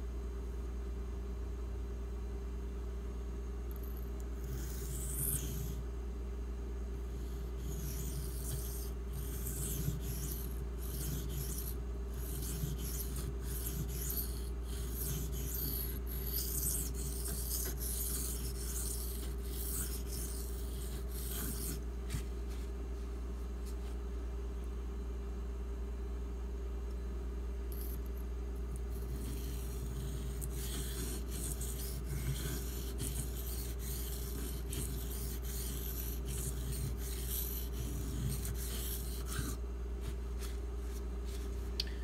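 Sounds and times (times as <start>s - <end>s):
knife blade rasping on whetstone: 4.4s - 5.8s, 7.2s - 21.8s, 27.8s - 28.0s, 28.8s - 39.6s.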